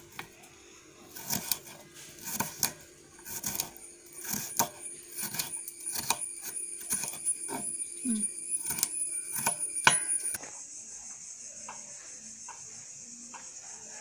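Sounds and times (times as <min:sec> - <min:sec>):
knife chopping on wooden board: 0:01.1 - 0:06.2, 0:08.6 - 0:10.4.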